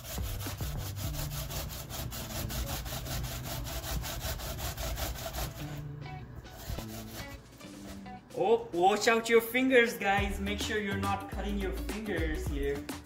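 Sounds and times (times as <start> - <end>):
cucumber rasping on a grater: 0.0 - 5.8, 6.6 - 7.4.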